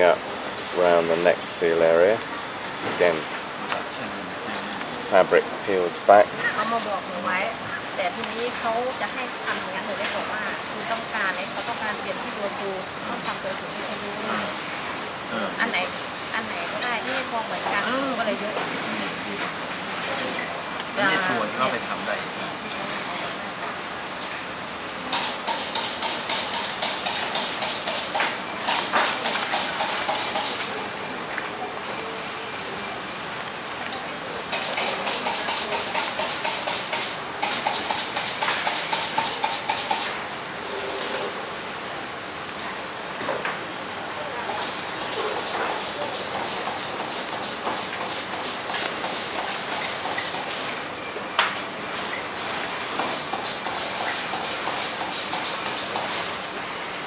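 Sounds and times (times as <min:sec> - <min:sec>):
steady hiss: 0:00.0 - 0:57.0
sharp click: 0:25.1 - 0:30.7, 0:34.5 - 0:40.2.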